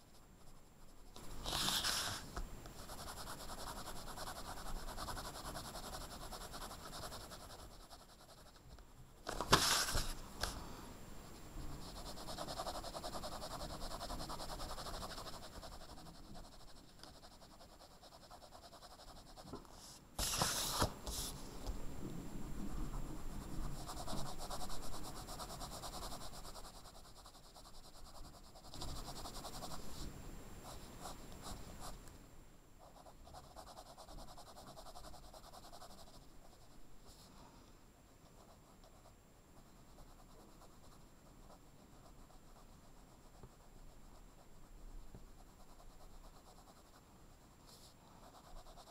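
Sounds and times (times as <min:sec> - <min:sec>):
paper rustling: 0:01.4 - 0:02.3, 0:09.3 - 0:10.6, 0:20.2 - 0:21.3
pencil shading on paper: 0:02.8 - 0:08.8, 0:11.6 - 0:19.6, 0:23.1 - 0:30.0, 0:32.8 - 0:36.8, 0:38.3 - 0:48.9.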